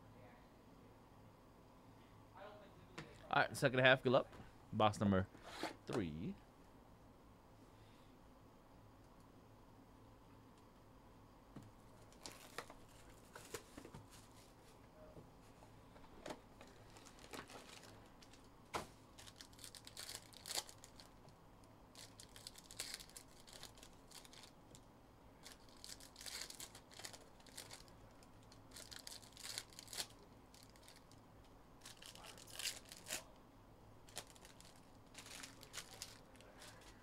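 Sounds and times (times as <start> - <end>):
foil wrappers tearing and crinkling: 16.8 - 18.5, 19.1 - 21.2, 21.9 - 24.8, 25.4 - 31.2, 31.8 - 33.3, 34.0 - 37.0.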